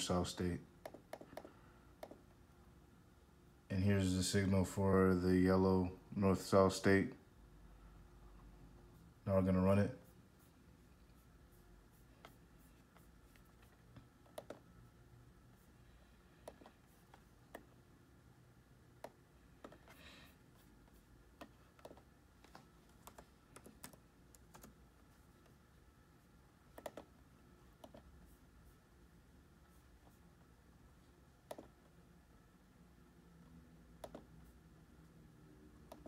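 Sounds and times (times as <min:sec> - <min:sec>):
laptop clicks: 0:14.2 - 0:14.6, 0:26.8 - 0:27.1, 0:34.0 - 0:34.3.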